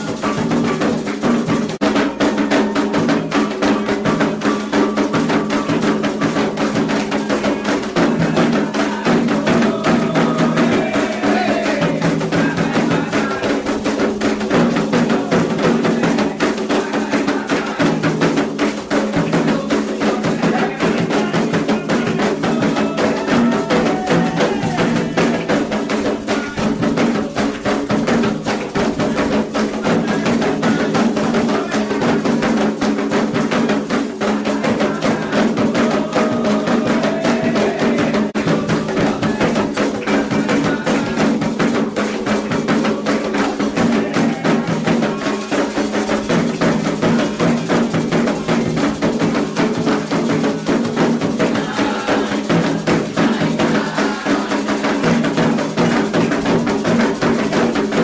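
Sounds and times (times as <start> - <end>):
hand drums fast rhythm: 0.0 - 58.0.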